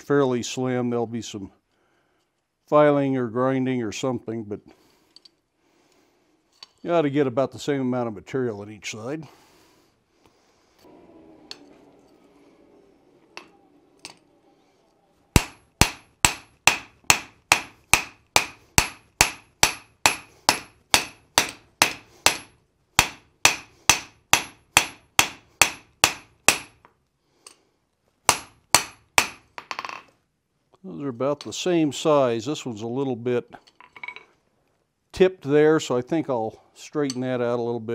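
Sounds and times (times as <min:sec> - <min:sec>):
hammer striking metal on anvil: 0:15.4 - 0:26.8, 0:28.3 - 0:30.0.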